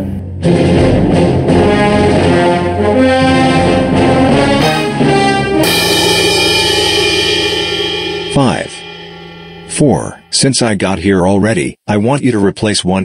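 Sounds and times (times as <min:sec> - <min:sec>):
loud brass-led orchestral music: 0:00.4 - 0:08.4.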